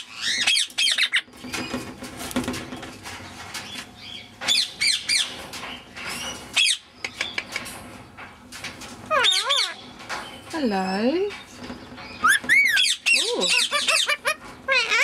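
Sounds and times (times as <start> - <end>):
parakeet chattering: 9.1 - 9.8, 12.2 - 15.0.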